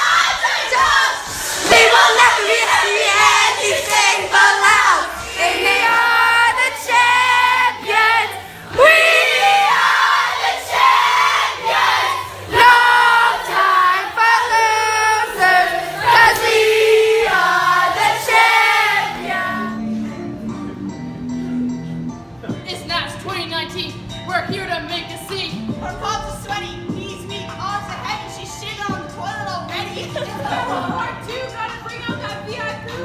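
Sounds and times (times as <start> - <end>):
voices singing a melody: 0.0 - 20.9.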